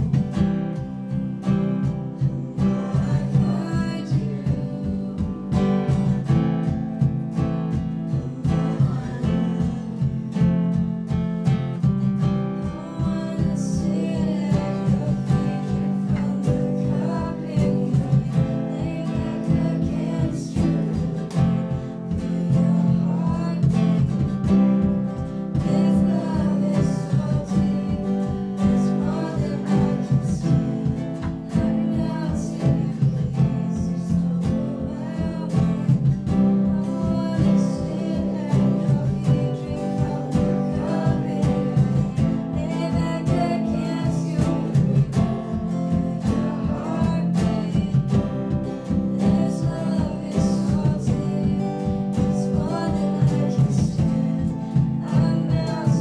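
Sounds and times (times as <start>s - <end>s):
acoustic guitar strumming: 0.0s - 56.0s
drum kit steady beat: 0.0s - 56.0s
electric guitar: 0.0s - 56.0s
woman singing: 0.0s - 56.0s.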